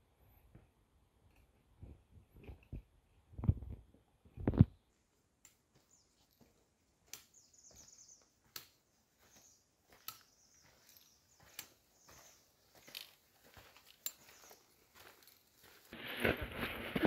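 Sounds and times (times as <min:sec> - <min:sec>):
trekking pole tips ticking: 0:05.4 - 0:15.6
footsteps scuffing on dirt: 0:05.6 - 0:17.0.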